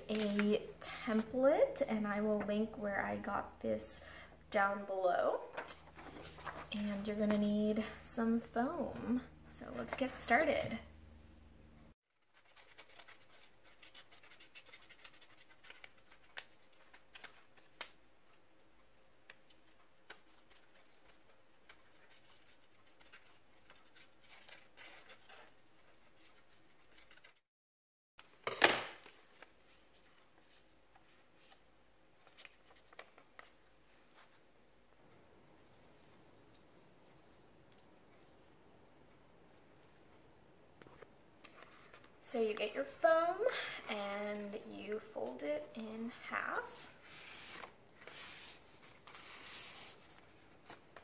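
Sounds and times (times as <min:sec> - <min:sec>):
paper rustling: 0:05.5 - 0:07.4, 0:12.2 - 0:18.4, 0:19.2 - 0:27.4, 0:32.2 - 0:34.4, 0:40.8 - 0:42.8, 0:46.6 - 0:51.0.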